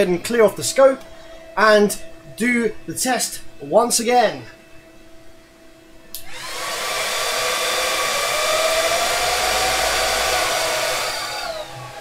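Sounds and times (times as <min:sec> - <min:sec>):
electric motor whirring: 0:06.2 - 0:12.0.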